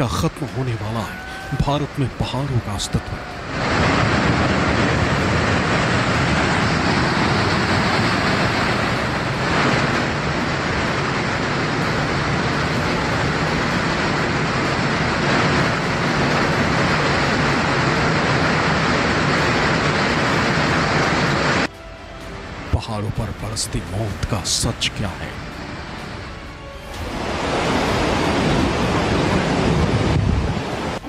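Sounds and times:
landslide rushing and rumbling: 0.0s - 21.7s, 22.3s - 31.0s.

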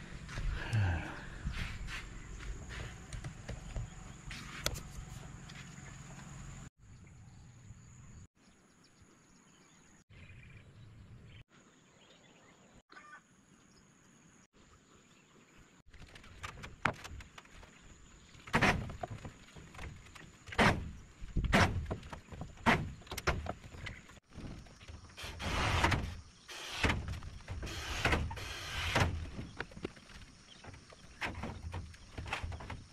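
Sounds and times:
wooden planks knocked and handled: 15.9s - 26.2s, 28.9s - 32.9s.

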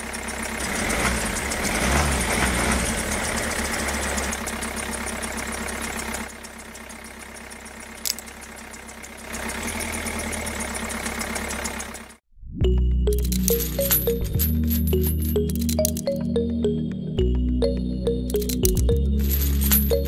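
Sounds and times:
tractor engine idling: 0.0s - 12.2s.

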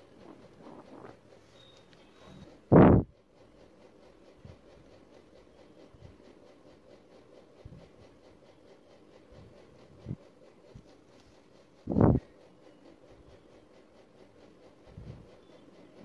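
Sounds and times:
pen nib scratching paper: 0.0s - 2.8s.

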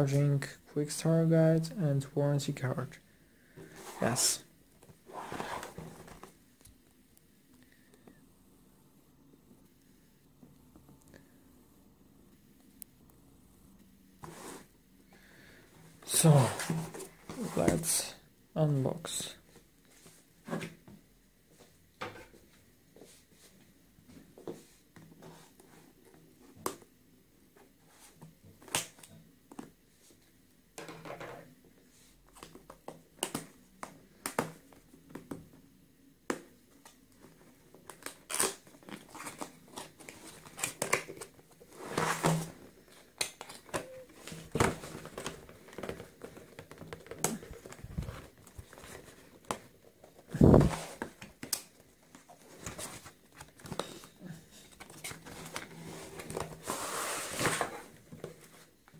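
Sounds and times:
cardboard and paper rustling: 37.3s - 58.9s.

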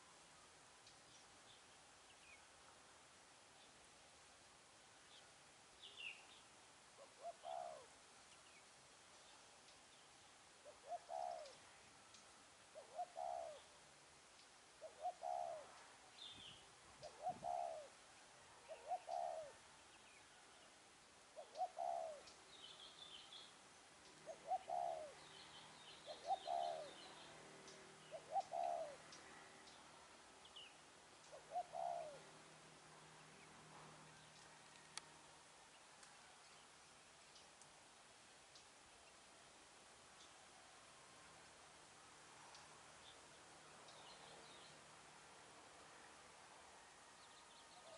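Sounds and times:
small birds chirping: 0.0s - 2.8s, 5.0s - 40.6s, 42.4s - 45.1s
dove cooing: 7.0s - 8.0s, 10.6s - 11.6s, 12.7s - 13.7s, 14.8s - 15.9s, 17.0s - 18.0s, 18.6s - 19.6s, 21.4s - 22.3s, 24.1s - 29.6s, 31.3s - 32.4s.

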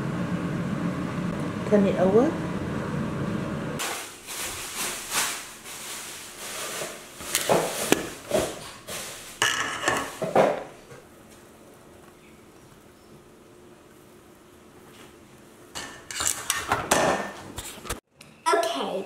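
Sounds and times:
spatula scraping pan: 9.4s - 10.3s, 15.8s - 17.8s.

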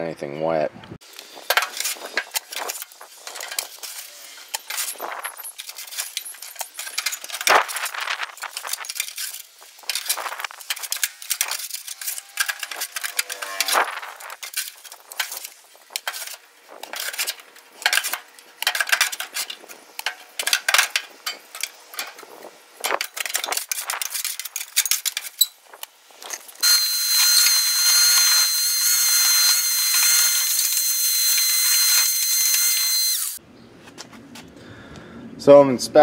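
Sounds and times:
metal scraper scraping rusted metal: 1.4s - 25.6s
shop vac running with high whine: 26.6s - 33.4s.

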